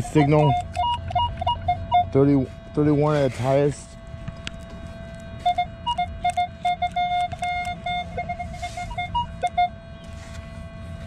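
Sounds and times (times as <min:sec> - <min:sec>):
metal detector steady tone: 0:00.0 - 0:10.4
metal detector short beeps: 0:00.1 - 0:01.3, 0:05.5 - 0:09.7.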